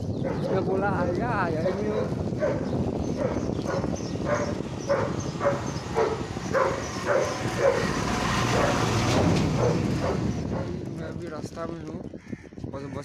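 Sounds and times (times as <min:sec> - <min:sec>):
motorcycle rumbling: 0:00.0 - 0:12.2
wind: 0:00.0 - 0:13.0
dog barking: 0:00.2 - 0:00.7, 0:01.9 - 0:02.6, 0:03.2 - 0:08.9, 0:09.6 - 0:10.7.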